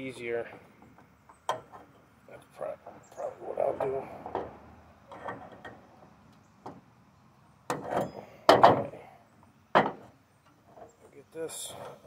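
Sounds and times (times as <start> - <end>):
metal parts knocking and scraping: 5.1 - 5.9, 7.7 - 8.9.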